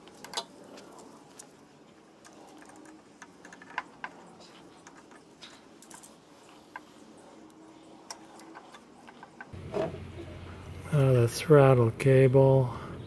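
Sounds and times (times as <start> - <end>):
small metal and plastic parts clicking: 0.0 - 6.9, 7.5 - 9.6.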